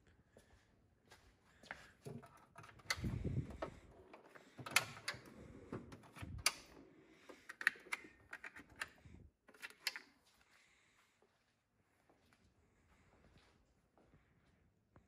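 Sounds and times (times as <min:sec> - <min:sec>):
steel drawers sliding open and shut: 0:02.2 - 0:08.7.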